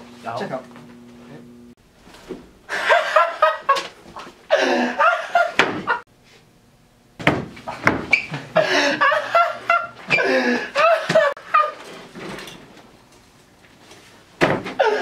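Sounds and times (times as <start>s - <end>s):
people laughing: 2.7s - 3.9s, 4.5s - 6.0s, 8.4s - 11.8s.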